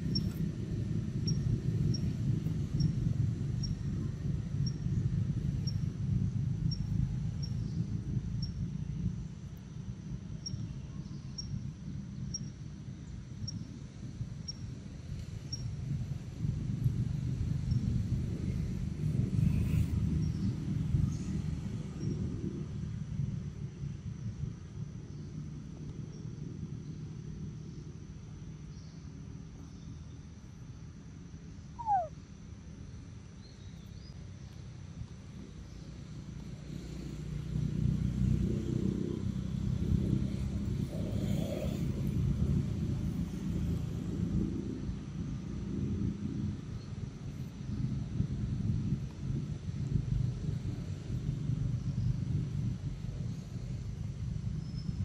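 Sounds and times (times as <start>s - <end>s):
animal call sliding down: 31.8s - 32.1s
short high chirp: 31.8s - 32.1s.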